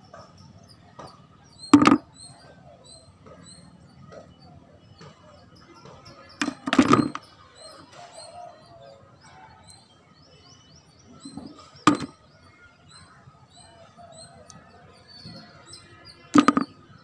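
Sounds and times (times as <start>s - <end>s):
small birds chirping: 0.0s - 17.0s
plastic toys clacking: 1.7s - 2.1s, 5.9s - 7.3s, 11.4s - 12.2s, 16.2s - 16.9s.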